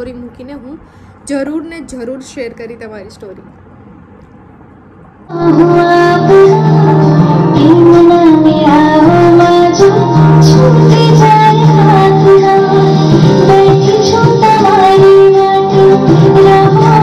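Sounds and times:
woman singing with instruments: 0:05.3 - 0:17.0.

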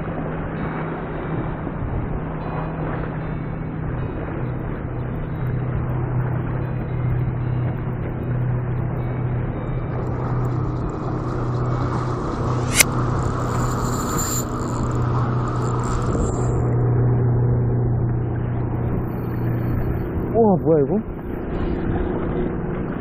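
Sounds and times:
motorboat engine humming: 0:00.1 - 0:23.0
sharp click: 0:12.5 - 0:15.0.

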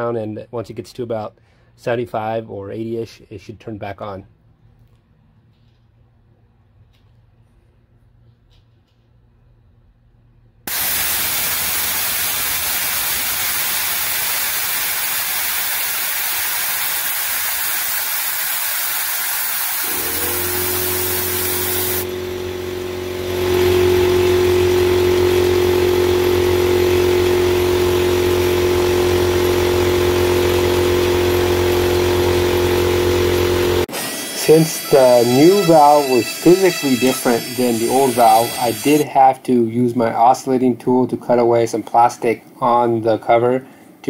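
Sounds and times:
compressed air hissing from valve: 0:10.7 - 0:22.1
compressor motor humming: 0:10.7 - 0:39.0.

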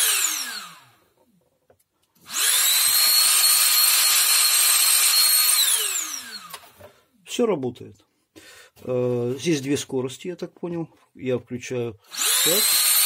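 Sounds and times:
stick vacuum motor whining: 0:00.0 - 0:01.0, 0:02.2 - 0:06.9, 0:12.1 - 0:13.0.

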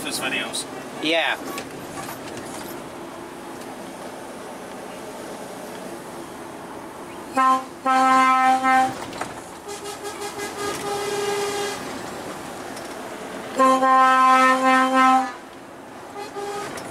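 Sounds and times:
truck cab drone: 0:00.0 - 0:16.9
fainter high-pitched horn: 0:07.3 - 0:09.0, 0:09.7 - 0:11.8
truck air horn blasts: 0:07.3 - 0:09.0, 0:09.6 - 0:11.9, 0:13.5 - 0:15.4, 0:16.1 - 0:16.9.

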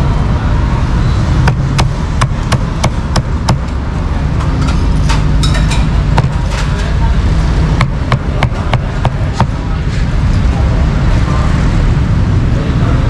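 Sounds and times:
traffic rumble: 0:00.0 - 0:13.0
cleaver chopping on cutting board: 0:07.8 - 0:09.5.

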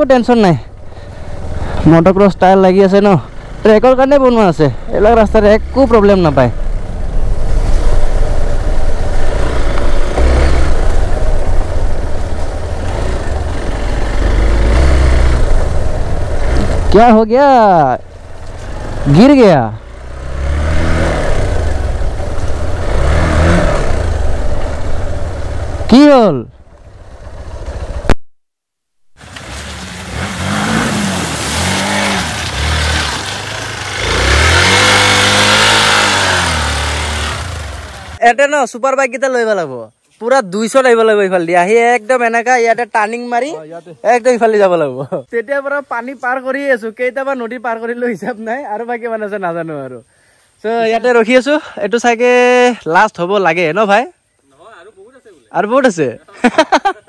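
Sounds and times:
motorcycle engine running: 0:00.7 - 0:17.0, 0:18.0 - 0:28.2, 0:29.5 - 0:38.2.

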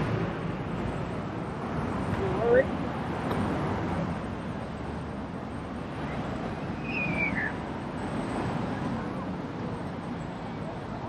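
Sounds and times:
passing traffic: 0:00.0 - 0:11.0.

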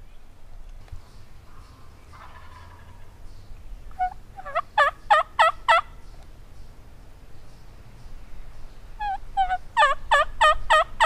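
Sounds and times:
turkey calling: 0:01.4 - 0:03.2, 0:03.9 - 0:06.0, 0:09.0 - 0:11.0.

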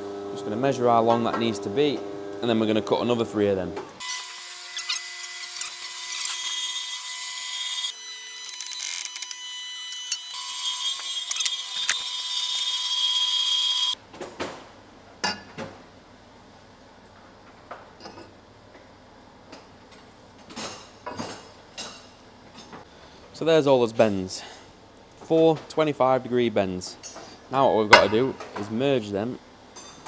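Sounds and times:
power tool cutting metal: 0:04.0 - 0:14.0.

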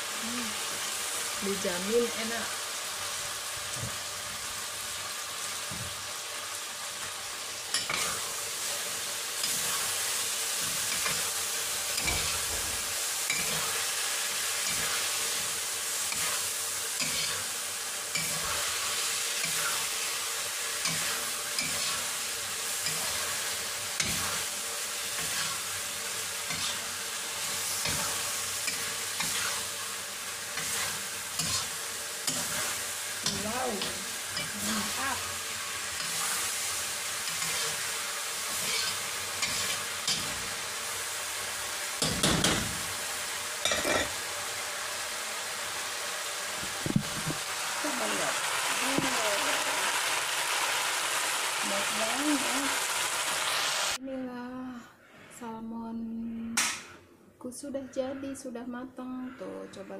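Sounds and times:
food sizzling in a wok: 0:00.0 - 0:54.0
metal spatula scraping a pan: 0:07.7 - 0:08.3, 0:13.2 - 0:13.9, 0:16.1 - 0:17.5, 0:18.1 - 0:19.9, 0:20.8 - 0:30.0, 0:30.6 - 0:35.0, 0:35.8 - 0:40.5.

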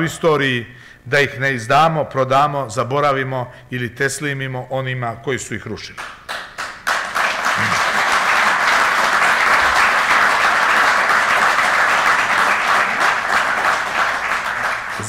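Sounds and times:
audience applauding: 0:06.0 - 0:15.0.

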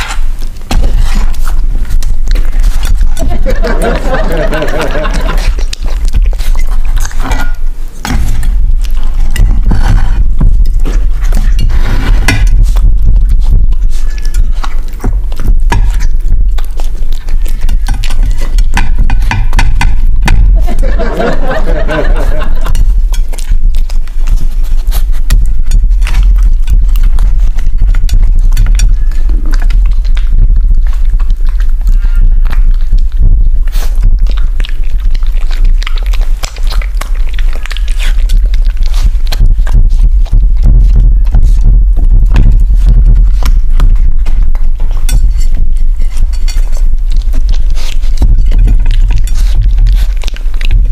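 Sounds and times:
puppy chewing and licking: 0:00.0 - 0:50.9
steady low rumble: 0:00.0 - 0:50.9
tongue clicking against a plate: 0:22.7 - 0:41.4, 0:42.3 - 0:50.9.

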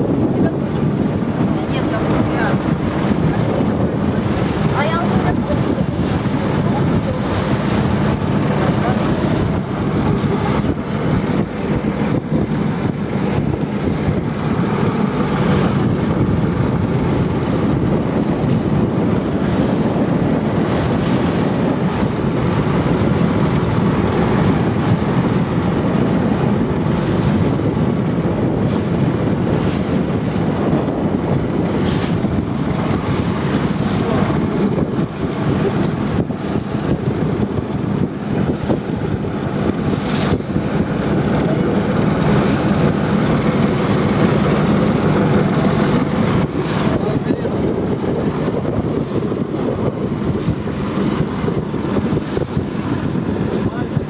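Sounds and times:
motorboat engine running: 0:00.0 - 0:54.0
water rushing along hull: 0:00.0 - 0:54.0
wind gusts on microphone: 0:00.0 - 0:54.0.

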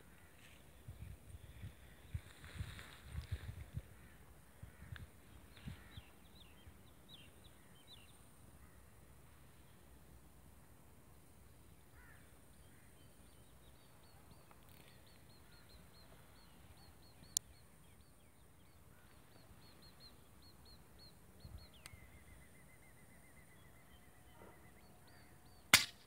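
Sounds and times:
small birds chirping: 0:11.5 - 0:26.0
loud sharp crack: 0:25.7 - 0:26.0
sharp click: 0:25.7 - 0:26.0.

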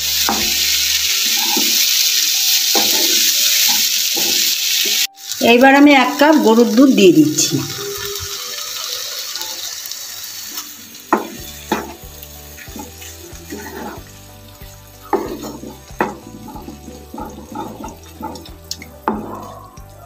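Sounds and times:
milk hissing into hot wok: 0:00.0 - 0:05.4, 0:07.4 - 0:18.8
spatula knocking and scraping pan: 0:02.7 - 0:04.5, 0:11.1 - 0:14.1, 0:15.2 - 0:19.6
soft background music: 0:02.7 - 0:20.0.

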